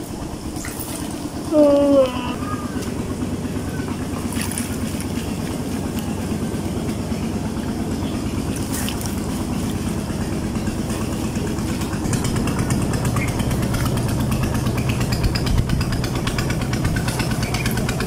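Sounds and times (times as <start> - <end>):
small engine throbbing: 0.0 - 18.0
water splashing: 3.8 - 15.4.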